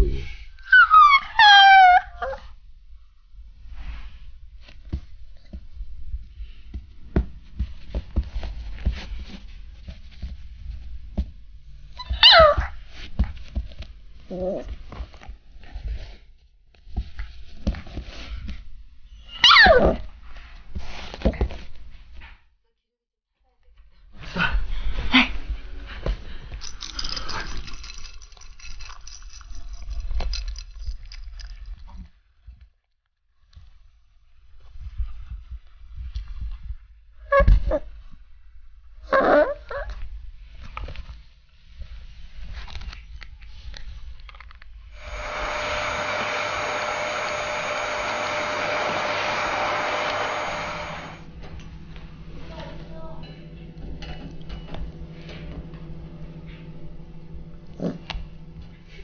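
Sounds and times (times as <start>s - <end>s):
puppy crying: 0.6s - 2.4s, 12.0s - 12.8s, 19.3s - 20.0s
taps and scuffs on carpet: 6.5s - 11.4s
bowl clicking and rattling on carpet: 26.4s - 32.1s.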